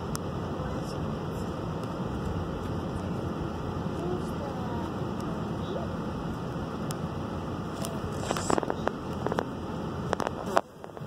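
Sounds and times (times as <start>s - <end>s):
car road and engine hum: 0.0s - 11.0s
clicks and crackles: 10.1s - 11.0s.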